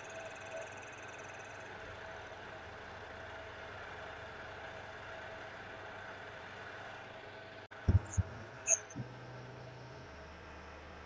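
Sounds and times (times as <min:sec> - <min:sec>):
dull thumps: 0:07.9 - 0:09.1.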